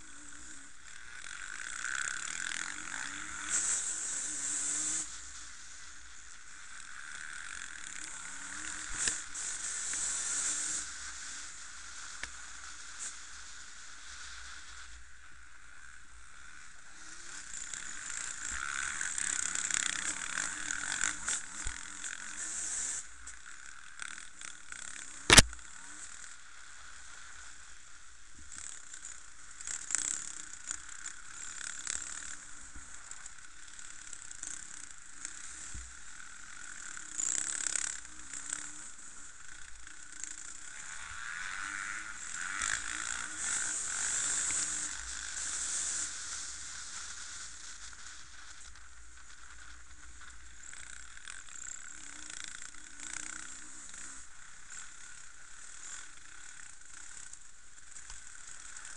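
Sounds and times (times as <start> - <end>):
dirt bike engines revving: 0.0 - 58.9.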